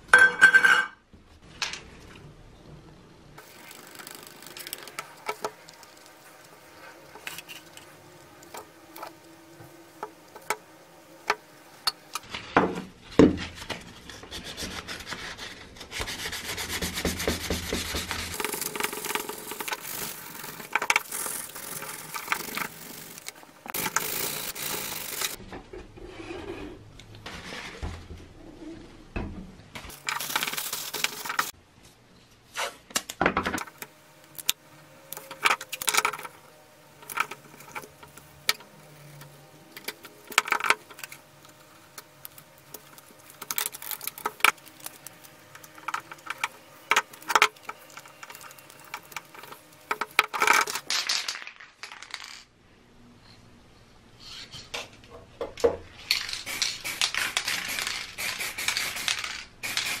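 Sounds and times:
aerosol can spraying: 17.0 - 25.4, 56.4 - 60.0.

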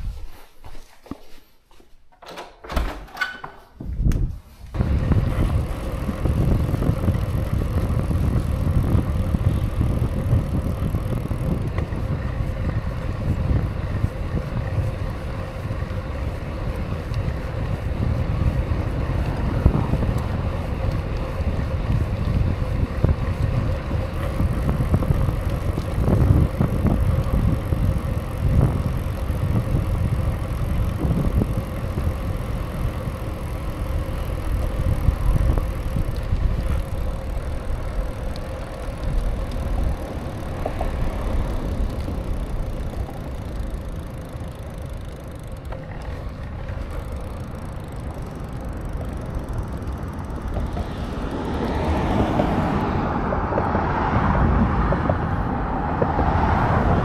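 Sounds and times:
bicycle tyres rolling: 3.6 - 57.0
wind on microphone: 3.8 - 44.3.

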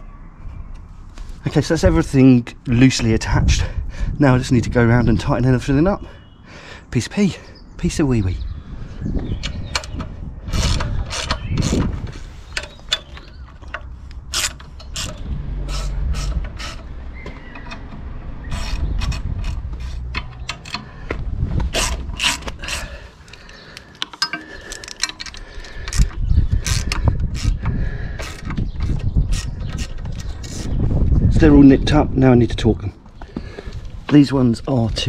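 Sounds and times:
socket ratchet clicking: 12.6 - 15.2, 15.8 - 20.9
low rumble: 13.6 - 23.2.

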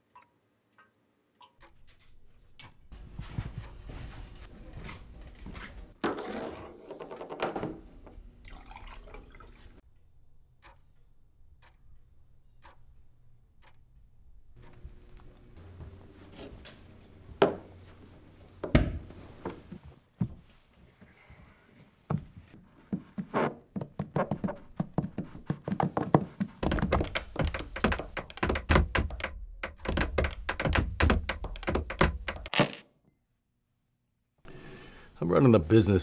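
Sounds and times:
knocks and thumps: 22.9 - 32.5
rapid taps: 23.8 - 32.5.

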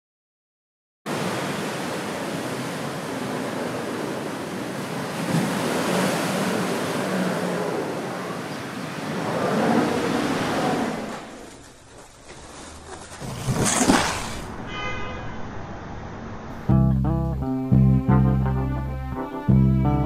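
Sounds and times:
ocean waves on beach: 1.1 - 12.4.

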